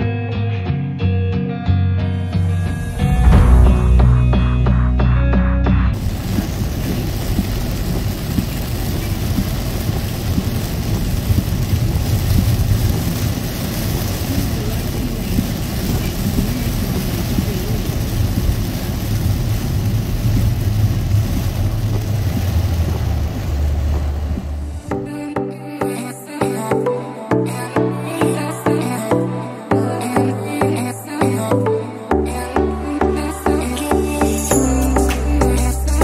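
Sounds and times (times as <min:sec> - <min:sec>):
car and tyres rumbling on wet road: 0:05.9 - 0:24.9
heavy rain on car roof: 0:06.0 - 0:25.0.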